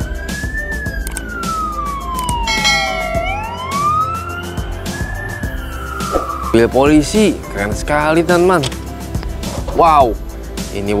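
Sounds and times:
police siren wailing: 1.2s - 5.6s
short higher siren tones: 2.5s - 4.4s.

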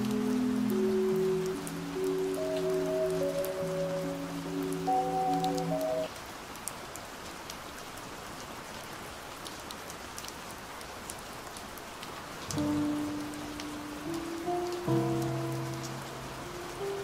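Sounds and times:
slowed muffled music: 0.0s - 6.1s, 12.5s - 17.0s
steady rain: 0.0s - 17.0s.

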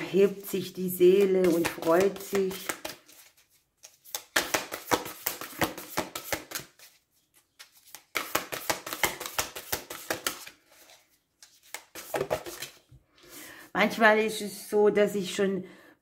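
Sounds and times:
cards being shuffled: 1.3s - 12.9s.

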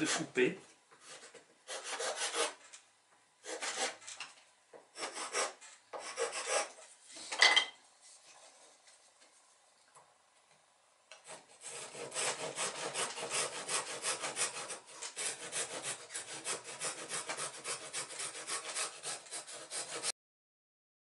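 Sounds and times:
saw cutting wooden stick: 0.0s - 0.4s, 1.0s - 2.6s, 3.4s - 4.1s, 5.0s - 6.8s, 11.1s - 20.2s.

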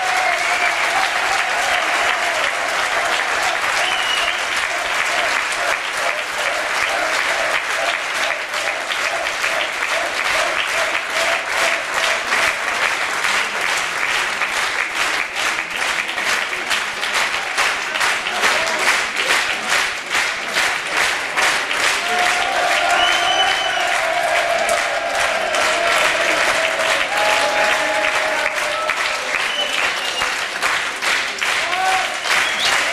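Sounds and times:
audience applauding: 0.0s - 32.9s.

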